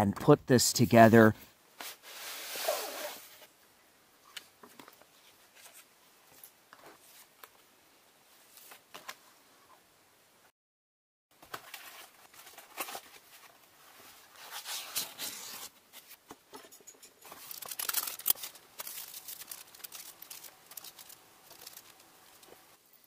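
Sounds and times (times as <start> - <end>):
plastic bags crinkling: 17.3 - 23.0.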